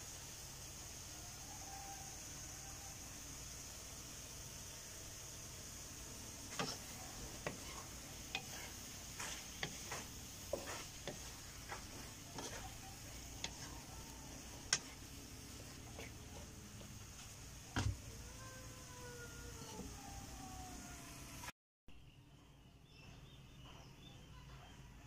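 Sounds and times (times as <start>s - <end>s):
low hiss: 0.0s - 21.5s
spatula scraping a pan: 6.3s - 17.3s.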